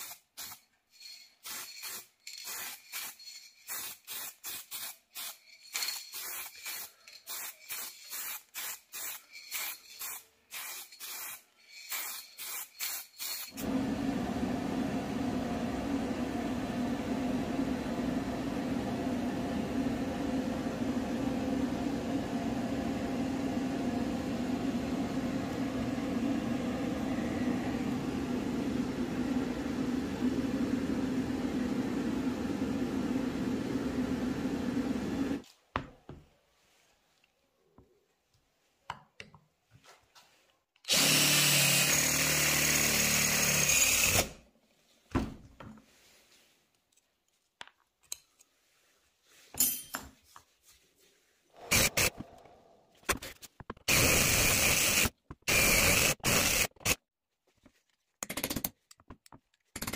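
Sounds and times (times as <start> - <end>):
aerosol spray can hissing: 0.0 - 13.6, 53.9 - 57.0.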